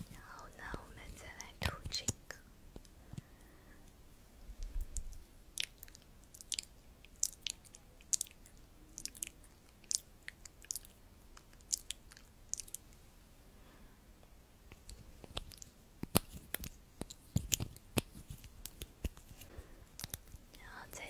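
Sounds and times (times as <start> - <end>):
wet lip and tongue clicks: 4.9 - 12.8, 14.7 - 19.4, 20.0 - 20.5.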